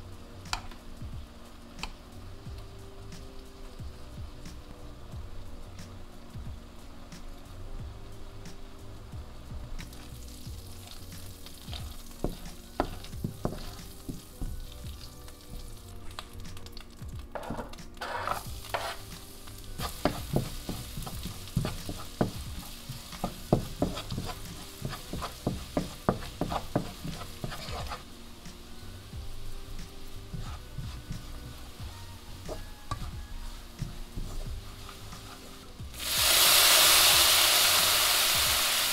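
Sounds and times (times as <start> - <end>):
food sizzling in a frying pan: 0.0 - 38.9
spatula scraping a pan: 10.7 - 14.4, 17.4 - 28.2, 29.4 - 36.1.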